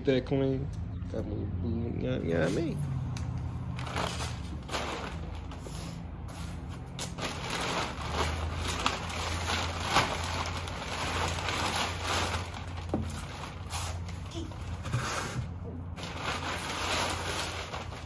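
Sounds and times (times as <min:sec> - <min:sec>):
plastic sheeting crinkling: 0:03.7 - 0:18.0.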